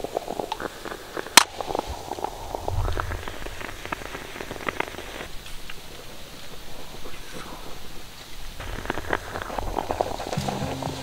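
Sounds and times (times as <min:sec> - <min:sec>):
moka pot sputtering and gurgling: 0:00.0 - 0:05.3, 0:08.6 - 0:11.0.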